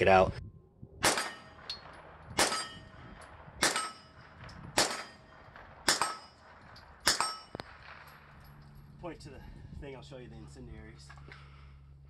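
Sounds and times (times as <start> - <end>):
steel target ringing: 1.0 - 4.2, 4.8 - 8.6
pistol shots: 1.0 - 8.6.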